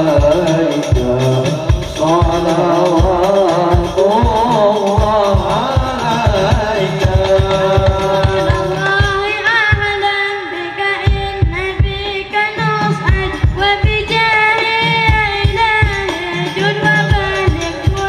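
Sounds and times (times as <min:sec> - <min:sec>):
men singing together: 0:00.0 - 0:09.0
frame drums beating: 0:00.0 - 0:10.2, 0:11.0 - 0:18.0.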